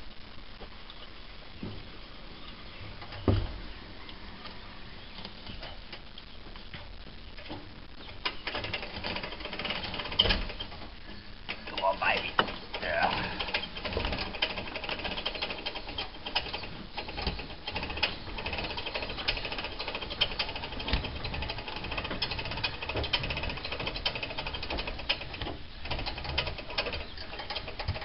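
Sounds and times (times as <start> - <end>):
winch clicking: 11.5 - 28.0.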